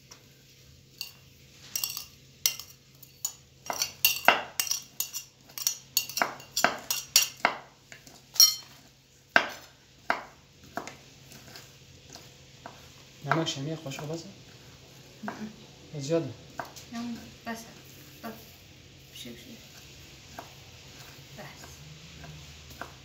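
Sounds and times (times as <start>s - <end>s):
metal spoon clinking on glass bowls: 1.0s - 7.5s, 8.4s - 8.8s.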